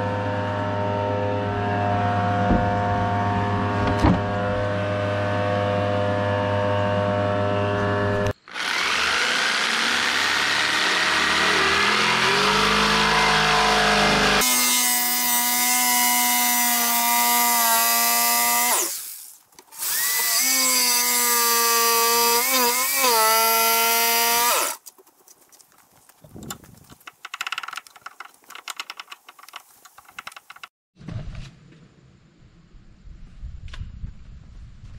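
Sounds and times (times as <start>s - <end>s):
thickness planer planing a board: 8.5s - 19.0s
jigsaw cutting a board: 8.5s - 24.8s.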